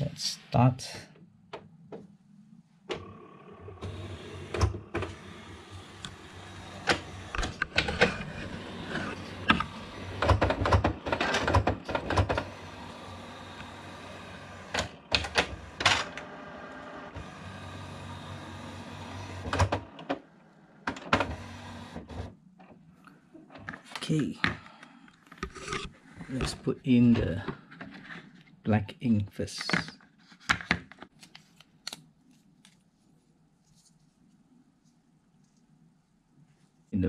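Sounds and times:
printer motor hum: 2.9s - 22.3s
printer carriage clicks and clunks: 3.8s - 5.2s, 6.8s - 8.3s, 9.4s - 12.6s, 14.4s - 16.3s, 19.1s - 20.2s, 20.8s - 22.3s.

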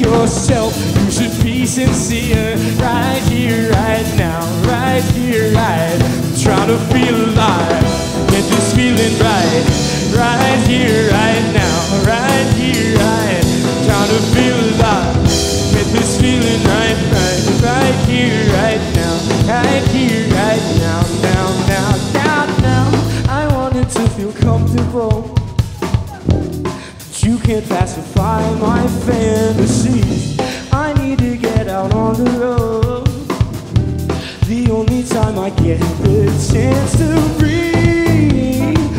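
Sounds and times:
live rock band playing: 0.0s - 38.9s
electric guitar bending notes: 2.6s - 23.0s, 25.5s - 27.0s.

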